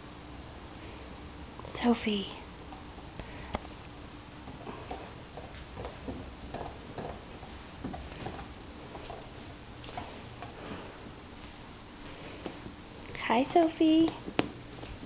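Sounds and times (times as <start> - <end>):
puppy gnawing bone: 4.5 - 10.7.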